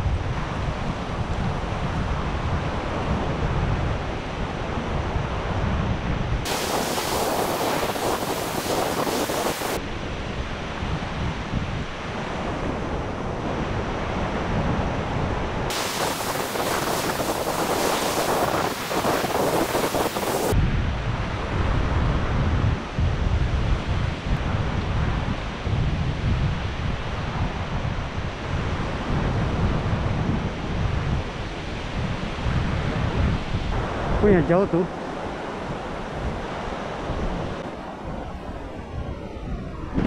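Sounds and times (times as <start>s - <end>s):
wind buffeting microphone: 0.0s - 40.0s
waves breaking on beach: 6.4s - 11.0s, 11.8s - 20.6s, 28.2s - 39.0s.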